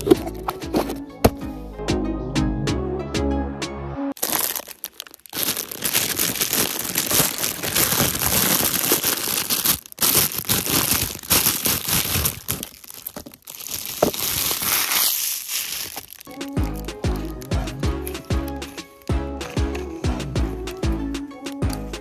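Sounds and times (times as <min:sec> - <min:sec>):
plastic bag crinkling: 0:00.0 - 0:01.0, 0:04.2 - 0:19.1.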